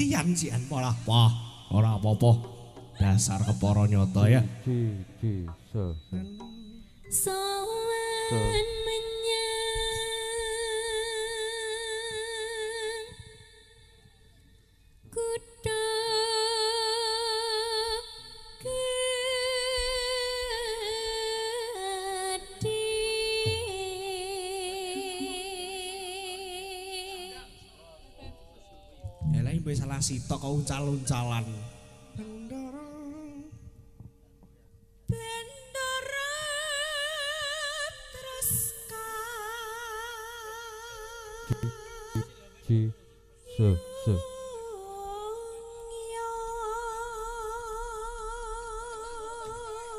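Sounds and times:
faint steady hum: 0.0 - 49.9
woman singing with vibrato: 6.2 - 13.4, 15.2 - 27.7, 32.1 - 33.6, 35.1 - 42.3, 43.4 - 49.9.

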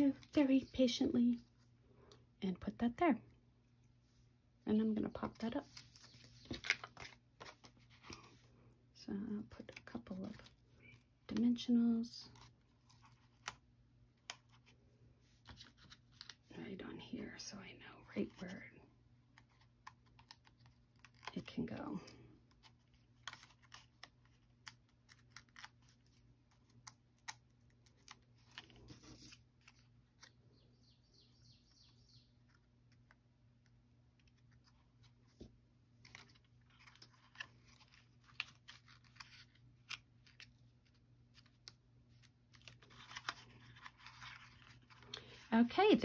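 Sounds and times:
paper rustling: 5.2 - 8.4, 14.3 - 16.4, 27.8 - 30.4, 34.2 - 45.7.

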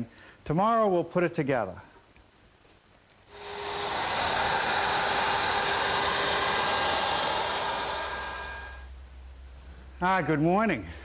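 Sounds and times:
router hissing and whining: 3.3 - 8.9.

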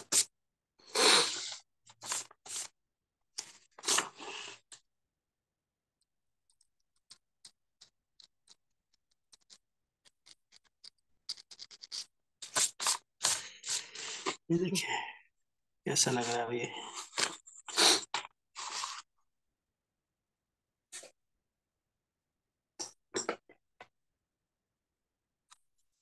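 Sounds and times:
pen nib scratching paper: 6.5 - 14.3.

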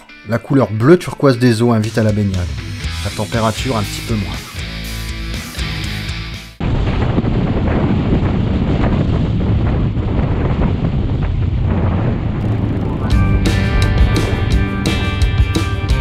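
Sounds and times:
rock music: 0.0 - 6.6, 12.4 - 16.0
wind buffeting microphone: 6.6 - 13.5
motorcycle engine running: 12.4 - 15.1.

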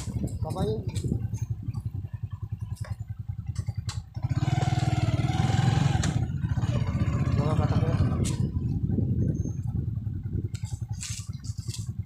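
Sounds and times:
motorcycle engine revving: 0.0 - 12.0.

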